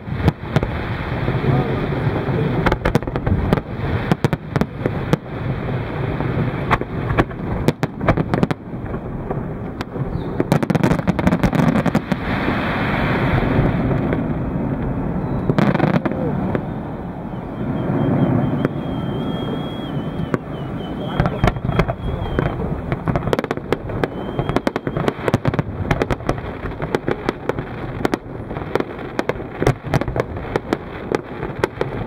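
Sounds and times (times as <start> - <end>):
continuous rumble: 0.0 - 12.2, 13.4 - 32.0
fireworks bangs and crackles: 0.0 - 32.0.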